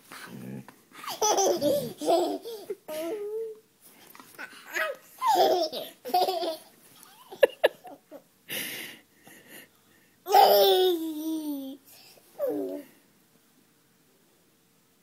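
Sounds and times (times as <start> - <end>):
baby laughing and squealing: 1.0 - 3.4.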